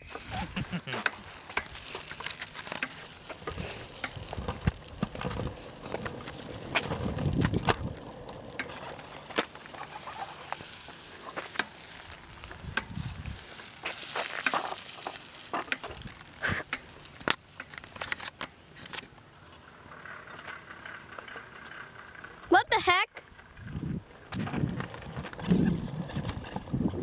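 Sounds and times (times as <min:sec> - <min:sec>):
wind rumble on microphone: 0:06.8 - 0:08.1, 0:12.3 - 0:13.5, 0:23.5 - 0:27.0.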